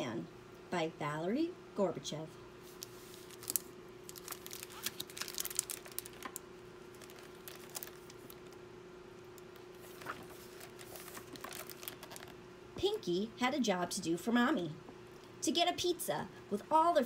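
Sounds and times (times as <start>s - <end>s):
faint steady hum: 0.0s - 17.0s
book pages turning: 2.6s - 8.6s, 9.4s - 12.4s
plastic cover crinkling: 2.6s - 12.4s.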